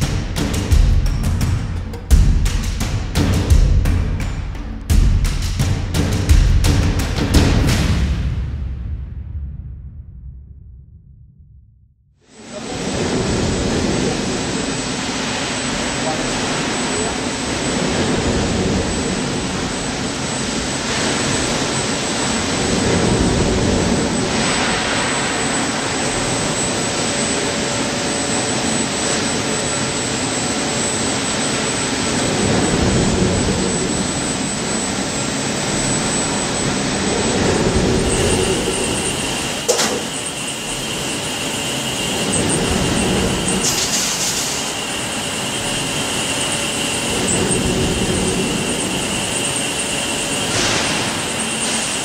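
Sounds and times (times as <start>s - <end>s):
factory machinery noise: 0.0s - 9.0s, 12.2s - 52.0s
thin high whine: 12.2s - 52.0s
sharp metal clank: 39.6s - 40.2s.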